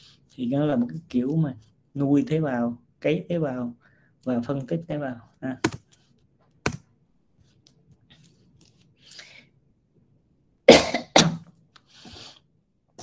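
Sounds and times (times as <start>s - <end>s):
person coughing: 10.7s - 11.5s.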